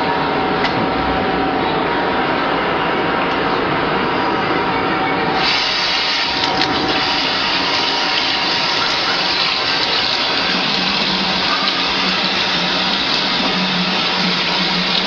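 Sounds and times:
tap water splashing into sink: 0:05.4 - 0:15.0.

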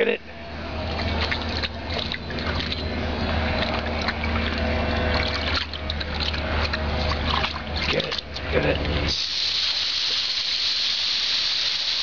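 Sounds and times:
dog splashing in shallow water: 0:00.8 - 0:09.1.

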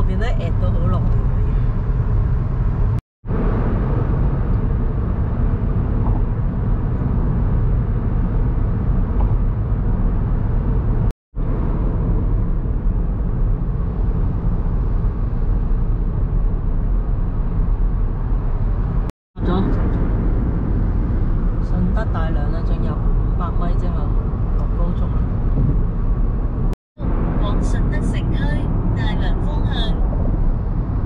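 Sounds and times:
car road and engine rumble: 0:00.0 - 0:31.0.

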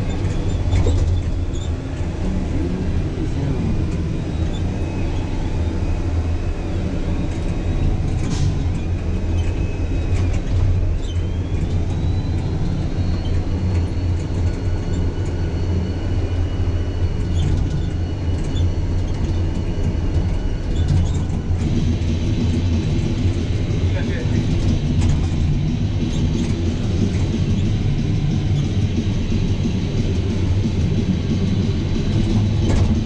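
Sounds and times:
cab rattle: 0:00.0 - 0:05.4, 0:17.1 - 0:33.0
tractor engine rumble: 0:00.0 - 0:33.0.

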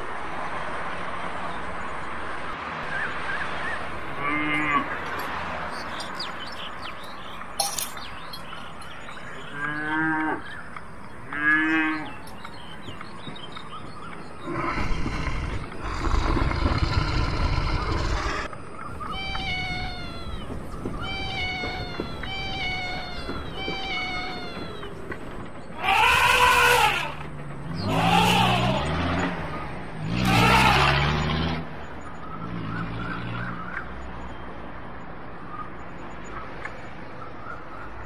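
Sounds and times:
low rumbling: 0:13.8 - 0:30.9
cat meowing: 0:19.1 - 0:24.8, 0:25.8 - 0:27.2.

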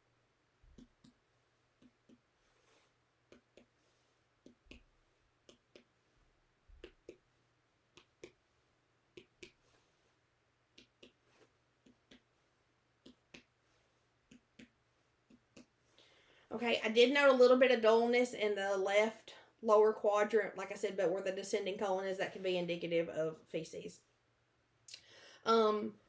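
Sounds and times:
finger tapping on belly: 0:01.8 - 0:02.3, 0:03.3 - 0:03.7, 0:04.4 - 0:05.9, 0:06.7 - 0:07.2, 0:10.7 - 0:11.2, 0:11.8 - 0:12.3.

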